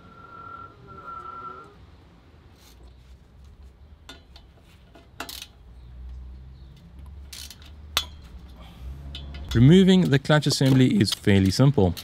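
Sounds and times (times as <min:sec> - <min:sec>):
metallic clinks of tools: 0:07.3 - 0:10.8.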